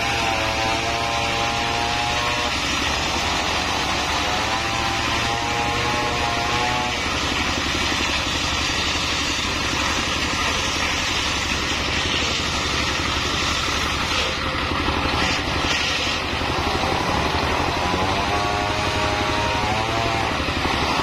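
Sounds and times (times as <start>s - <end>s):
saw blade cutting log: 0.0s - 21.0s
diesel engine running: 6.6s - 21.0s.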